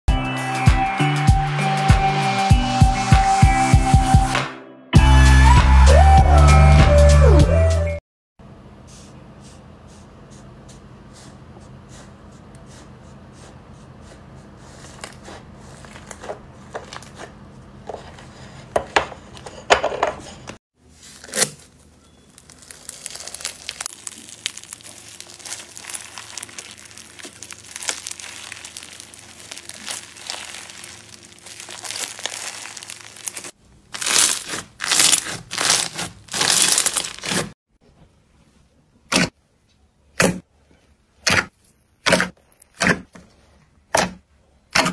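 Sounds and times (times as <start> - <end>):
hands squeezing crunchy slime: 22.2 - 37.6.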